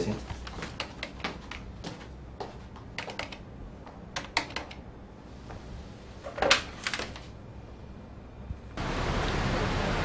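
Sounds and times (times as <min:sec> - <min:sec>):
computer keyboard typing: 0:03.0 - 0:03.4, 0:04.2 - 0:04.8.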